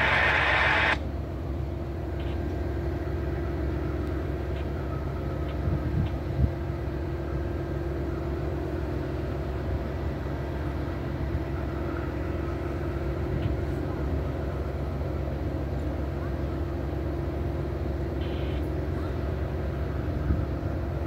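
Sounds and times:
loud hissing noise: 0.0 - 1.0
diesel locomotive idling: 0.0 - 21.0.

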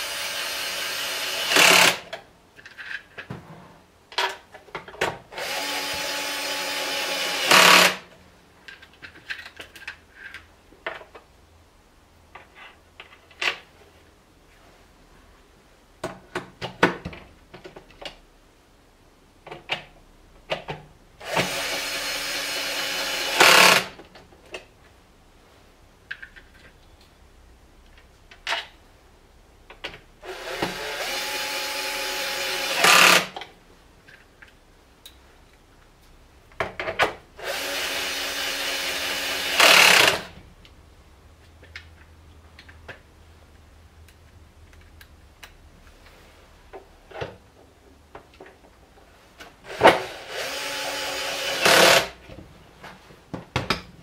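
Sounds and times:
cordless drill driving screws: 0.0 - 2.0, 5.4 - 8.0, 21.2 - 24.0, 30.2 - 33.4, 37.4 - 40.3, 49.7 - 52.2.

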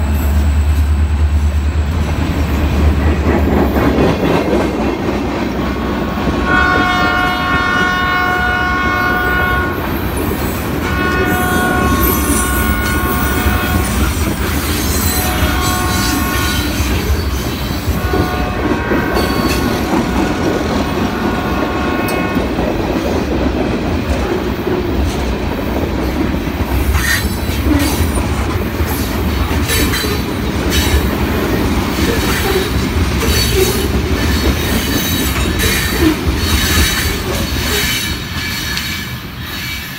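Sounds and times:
freight train rumbling past: 0.0 - 39.9
wheels clacking over rail joints: 2.0 - 6.9
locomotive air horn: 6.4 - 9.9, 10.8 - 14.4, 15.0 - 17.1, 18.0 - 22.5.

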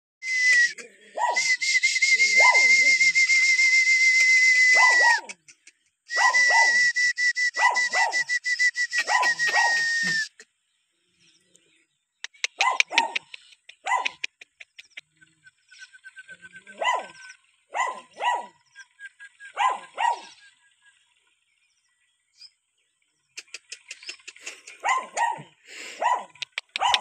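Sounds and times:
steady high whistle: 0.2 - 0.8, 1.4 - 5.2, 6.1 - 10.3
dog barking and yelping: 1.2 - 1.5, 2.4 - 2.8, 4.7 - 5.4, 6.1 - 6.8, 7.6 - 8.2, 9.0 - 10.2, 12.4 - 14.6, 16.7 - 18.6, 19.5 - 20.4, 24.7 - 27.0.

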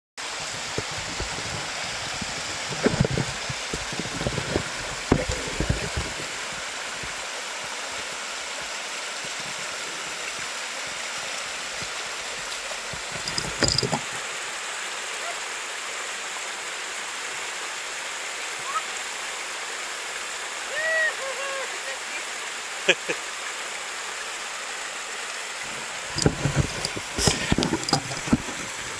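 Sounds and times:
stream rushing over rocks: 0.2 - 28.9
thumps: 13.1 - 14.2, 26.1 - 28.8.

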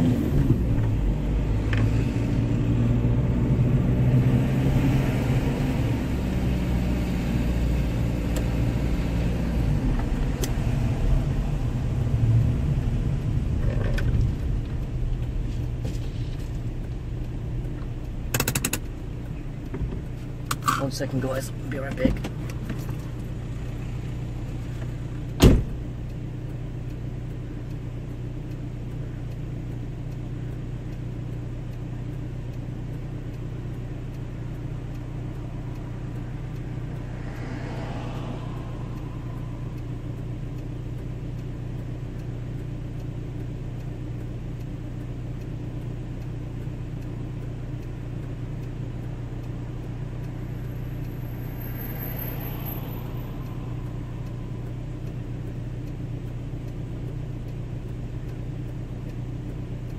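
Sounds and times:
car engine idling: 0.0 - 59.9
car door slamming: 25.4 - 25.8.

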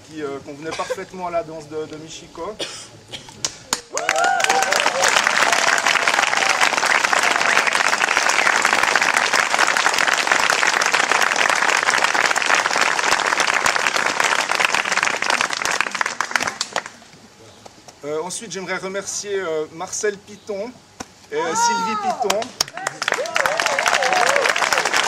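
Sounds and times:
small audience applauding: 3.4 - 17.0, 22.1 - 25.0.

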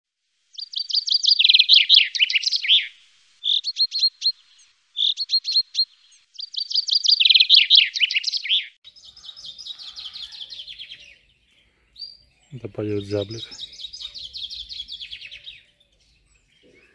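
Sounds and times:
chaffinch singing: 0.5 - 16.9
light background noise: 8.9 - 16.9.

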